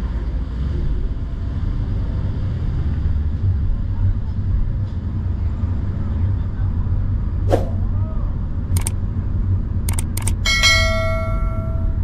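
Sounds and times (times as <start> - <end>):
car driving rumble: 0.0 - 12.0
quick whoosh: 7.4 - 7.9
mouse clicks: 9.9 - 10.4
bell ding: 10.4 - 12.0.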